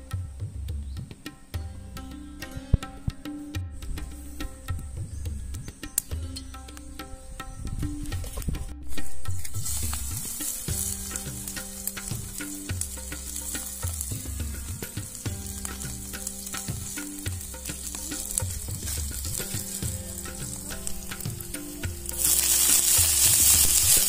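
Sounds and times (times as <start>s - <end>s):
oil sizzling in a wok: 9.5s - 14.3s, 22.0s - 24.0s.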